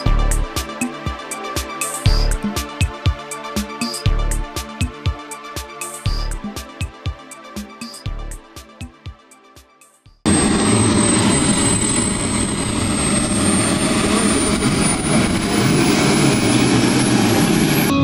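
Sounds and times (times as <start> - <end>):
jet engine rushing: 10.3 - 17.9
high turbine whine: 10.3 - 18.0.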